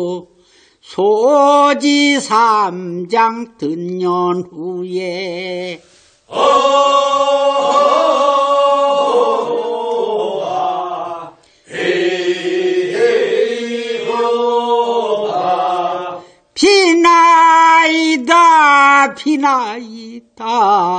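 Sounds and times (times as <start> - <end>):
voices chanting a work song: 6.3 - 18.6.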